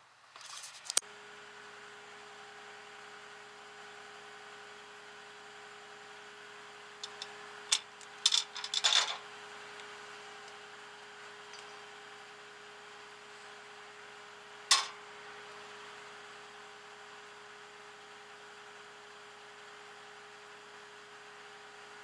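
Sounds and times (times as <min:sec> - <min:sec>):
truck engine humming: 0:06.6 - 0:16.1
sharp clack: 0:14.7 - 0:15.0.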